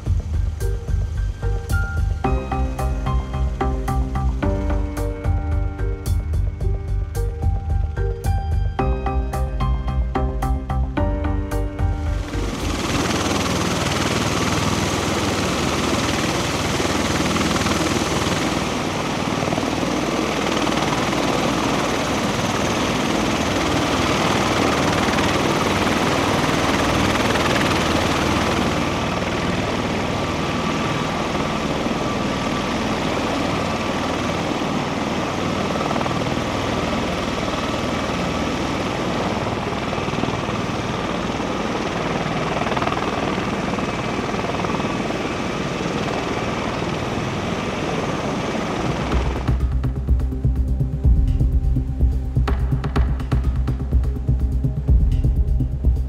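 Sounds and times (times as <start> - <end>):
high hiss: 0.0 - 8.4
aircraft engines roaring: 0.0 - 56.0.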